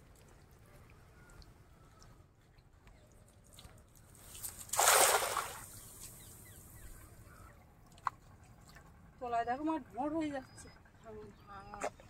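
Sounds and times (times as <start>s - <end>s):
water splashing: 4.2s - 6.2s.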